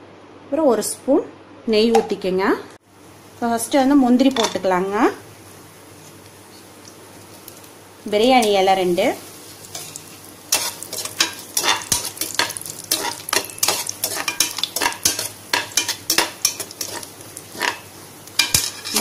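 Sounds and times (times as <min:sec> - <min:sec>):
light sizzle: 0:02.8 - 0:19.0
spatula scraping a pot: 0:09.7 - 0:19.0.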